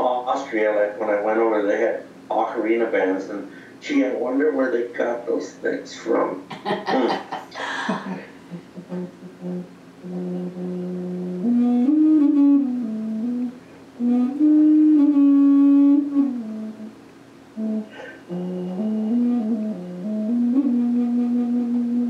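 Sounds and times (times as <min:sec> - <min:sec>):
ocarina playing long low notes: 0:08.5 - 0:16.9, 0:17.6 - 0:22.0.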